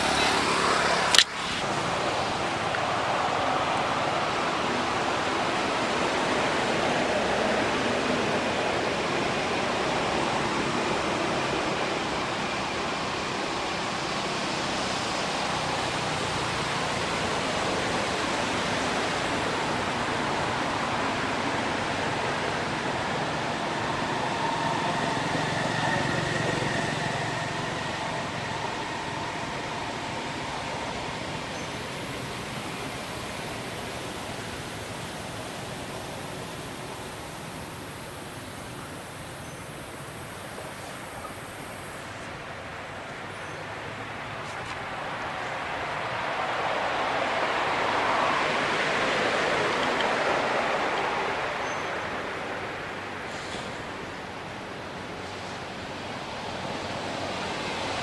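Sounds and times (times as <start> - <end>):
outdoor background hiss: 0.0 - 58.0
sharp click: 1.1 - 1.6.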